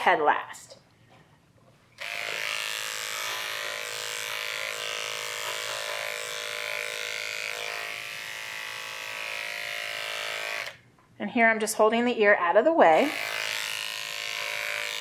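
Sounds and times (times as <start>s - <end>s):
electric clipper humming: 2.0s - 10.8s, 13.0s - 15.0s.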